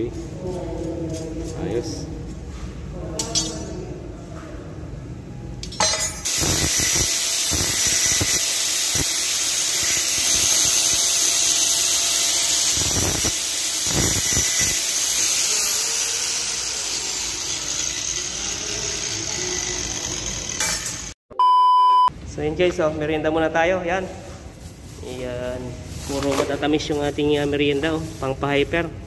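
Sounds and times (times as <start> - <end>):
angle grinder cutting steel: 6.2 - 21.2.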